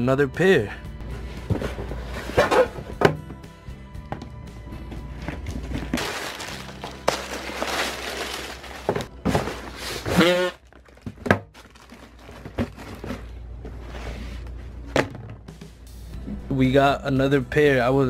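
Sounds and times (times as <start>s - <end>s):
cardboard boxes scraping on shelf: 1.0s - 3.1s, 7.7s - 10.6s, 12.4s - 14.8s
boxes knocking and thunking: 1.2s - 13.9s, 14.8s - 15.7s.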